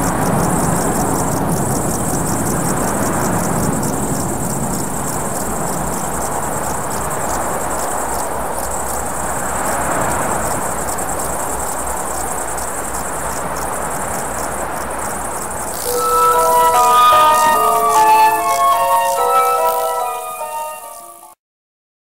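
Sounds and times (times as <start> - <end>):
insects chirring: 0.0 - 21.4.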